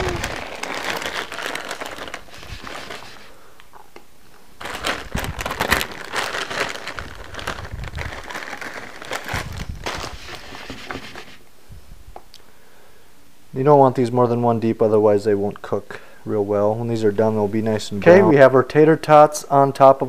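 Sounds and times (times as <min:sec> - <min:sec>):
plastic bag crinkling: 0:00.0 - 0:03.4, 0:04.6 - 0:10.7.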